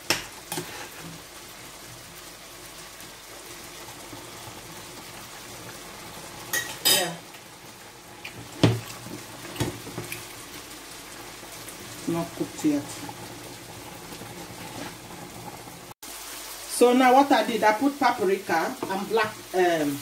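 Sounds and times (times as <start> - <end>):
seafood sizzling in a pan: 0.0 - 20.0
cookware and utensils clinking: 6.5 - 7.3.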